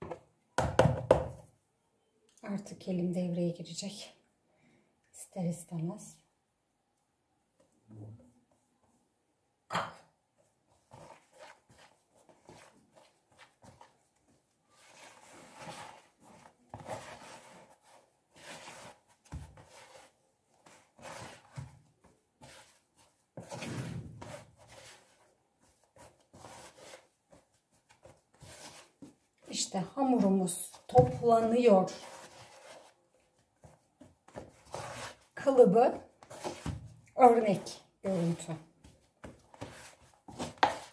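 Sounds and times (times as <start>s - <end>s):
hand kneading dough: 10.2s - 40.9s.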